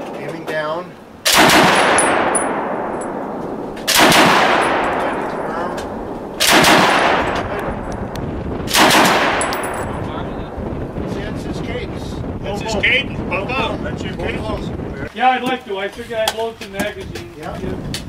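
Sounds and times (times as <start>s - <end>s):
rifle shots echoing: 1.2s - 10.0s.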